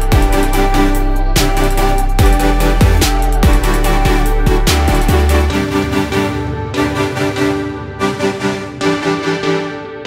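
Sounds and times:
deep bass kicks: 0:00.0 - 0:06.7
electronic music: 0:00.0 - 0:10.0.

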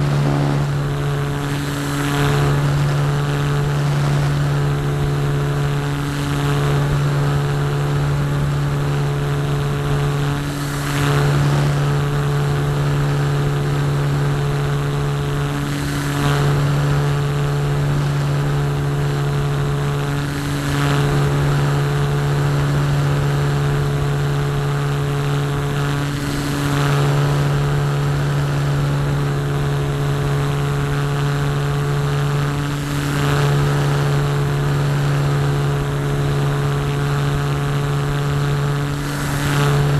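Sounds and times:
rushing air: 0:00.0 - 0:05.0
electric motor humming: 0:00.0 - 0:07.8.

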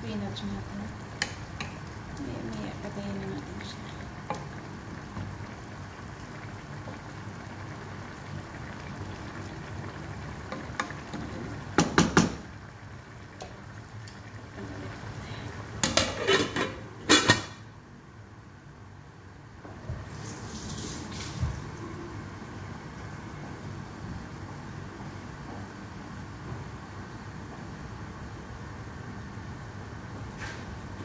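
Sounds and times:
stew simmering: 0:00.0 - 0:17.2
metal lid clattering onto pot: 0:15.8 - 0:17.6.

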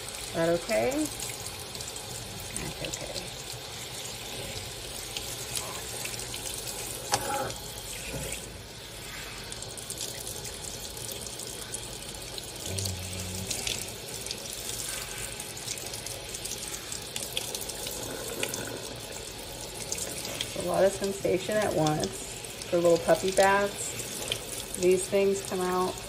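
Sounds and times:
faucet sprayer water spraying: 0:00.0 - 0:26.0.

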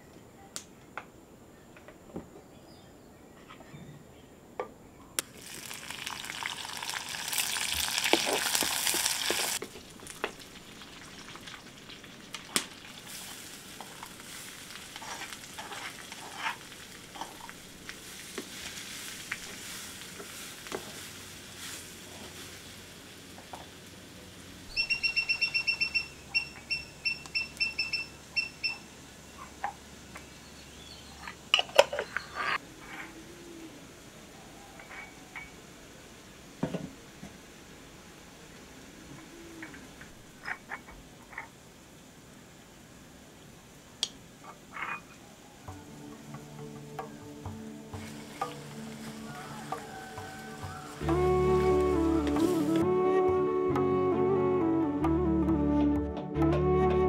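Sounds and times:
food sizzling in pan: 0:05.2 - 0:24.7, 0:45.6 - 0:52.8
wooden spoon scraping pan: 0:14.9 - 0:21.1
bird chirping: 0:24.7 - 0:32.6.

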